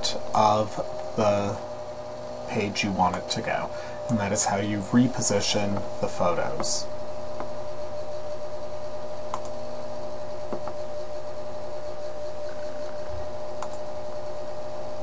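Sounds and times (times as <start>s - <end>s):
electrical hum and hiss: 0.0s - 15.0s
faint clicks: 9.3s - 9.6s, 12.4s - 13.8s.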